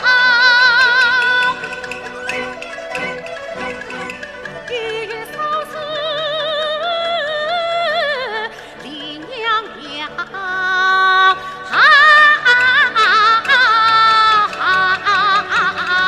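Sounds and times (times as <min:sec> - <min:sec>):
opera singing: 0:00.0 - 0:02.0, 0:04.5 - 0:16.0
orchestral accompaniment: 0:00.0 - 0:06.6.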